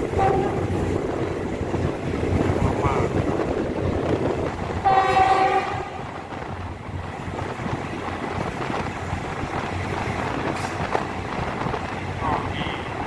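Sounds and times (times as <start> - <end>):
train horn: 0.0 - 0.9, 4.8 - 6.2
train wheels rumbling on track: 0.0 - 13.0.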